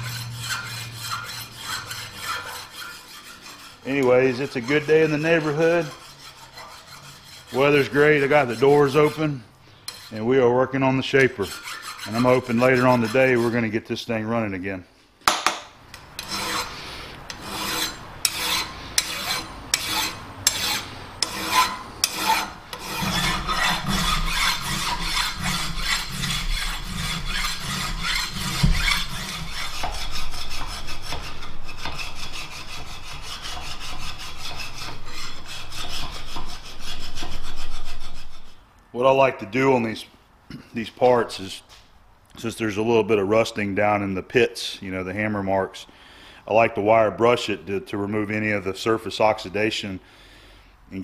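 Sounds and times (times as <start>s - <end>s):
hand file scraping metal: 0.0s - 13.8s, 16.0s - 38.6s.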